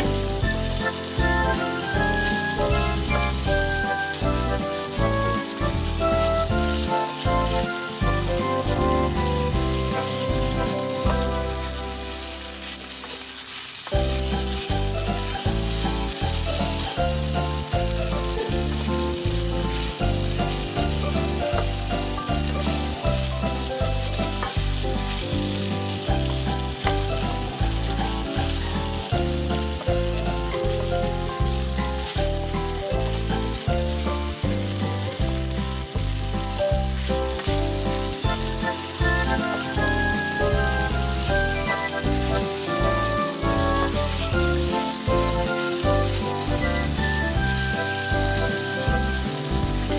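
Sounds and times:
background music with a beat: 0.0s - 12.5s, 14.0s - 49.9s
meat sizzling in a frying pan: 0.0s - 49.9s
wooden spatula stirring: 0.0s - 49.9s.

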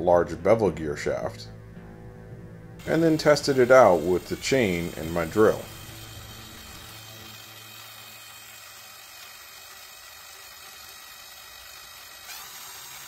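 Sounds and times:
cordless drill whirring: 2.8s - 13.0s.

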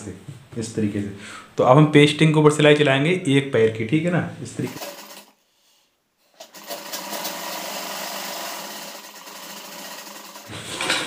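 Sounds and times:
sewing machine stitching: 4.6s - 5.3s, 6.4s - 11.0s.

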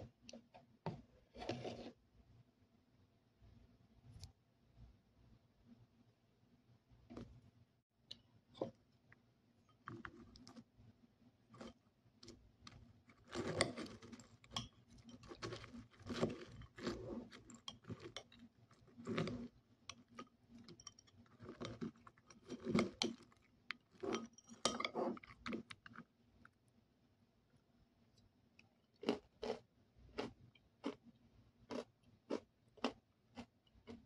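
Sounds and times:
granola crunching: 13.1s - 14.5s, 15.1s - 20.2s.

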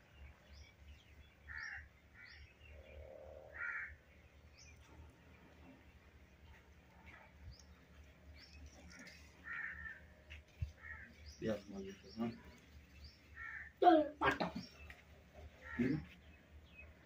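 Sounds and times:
small birds chirping: 0.0s - 17.0s
crows cawing: 1.5s - 4.0s, 8.9s - 11.3s, 13.3s - 13.8s, 15.5s - 16.2s.

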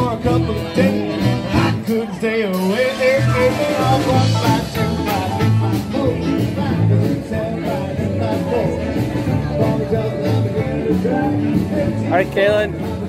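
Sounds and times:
electric guitar: 0.0s - 13.0s
stepping bass line: 0.0s - 13.0s
saxophone: 2.7s - 6.9s.

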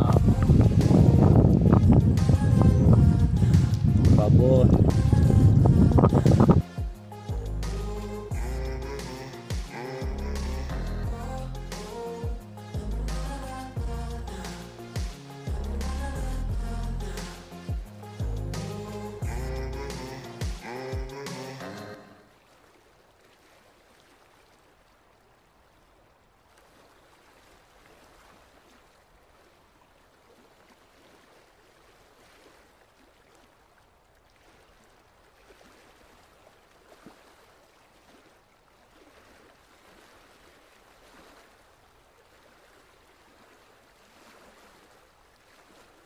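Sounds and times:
small waves lapping: 0.0s - 16.1s, 17.0s - 46.0s.

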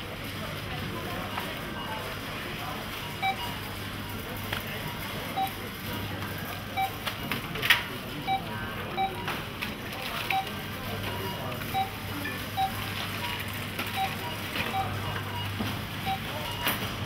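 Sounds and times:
barcode scanner beeps: 3.0s - 5.7s, 6.4s - 7.2s, 8.2s - 9.5s, 10.2s - 17.0s.

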